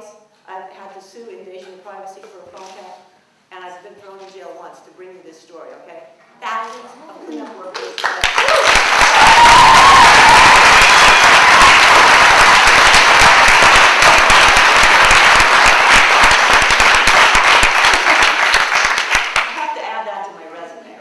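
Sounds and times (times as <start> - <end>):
audience applauding: 7.9 - 19.6.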